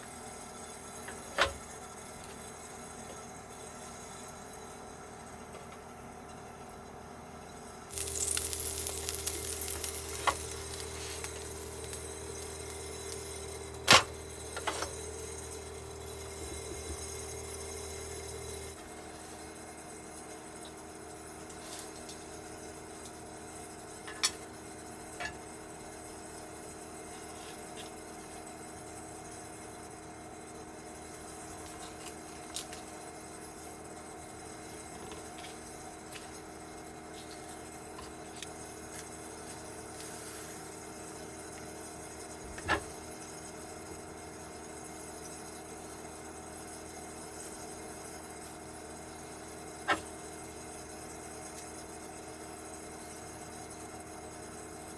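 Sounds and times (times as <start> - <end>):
steady low hum: 0.0 - 44.6
pancake sizzling: 7.9 - 29.9, 30.8 - 53.2.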